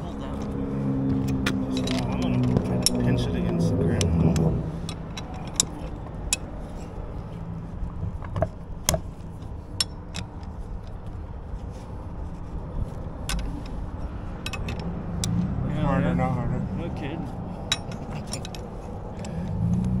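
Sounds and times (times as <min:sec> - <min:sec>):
engine idling: 0:00.0 - 0:20.0
metallic clicks of winch cable: 0:01.2 - 0:07.0, 0:08.2 - 0:11.2, 0:13.2 - 0:15.5, 0:17.7 - 0:20.0.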